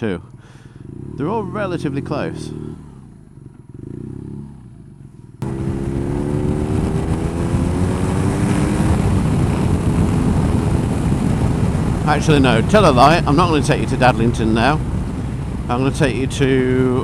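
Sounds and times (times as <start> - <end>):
motorcycle engine: 0.0 - 17.0
wind noise: 5.4 - 17.0.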